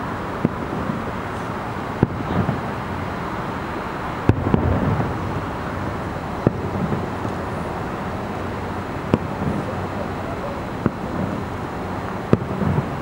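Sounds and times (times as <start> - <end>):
outdoor background noise: 0.0 - 13.0
distant firework shells bursting: 4.2 - 13.0.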